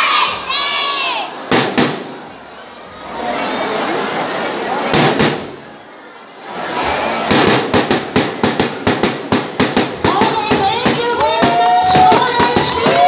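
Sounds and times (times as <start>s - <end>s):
children calling out: 0.0s - 1.4s.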